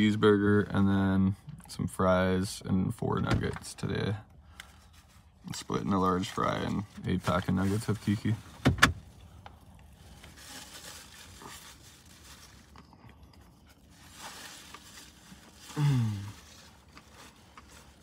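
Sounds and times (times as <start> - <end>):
chewing food: 12.6 - 13.9
person humming mmm: 15.7 - 16.4.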